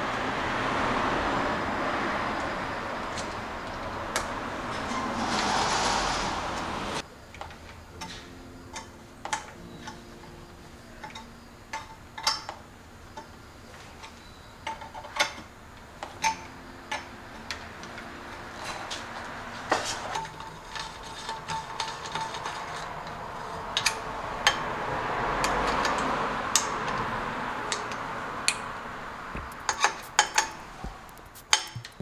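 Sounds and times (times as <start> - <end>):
loud rushing noise: 0.0 - 7.0, 20.7 - 32.0
hex key metallic clicks: 29.4 - 32.0.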